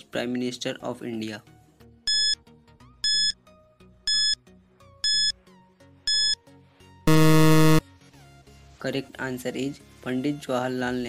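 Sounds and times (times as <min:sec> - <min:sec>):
faint background music: 0:00.0 - 0:07.0, 0:07.8 - 0:11.0
high-pitched timer beeps: 0:02.1 - 0:02.4, 0:03.0 - 0:03.4, 0:04.1 - 0:04.4, 0:05.0 - 0:05.3, 0:06.1 - 0:06.4, 0:07.1 - 0:07.8.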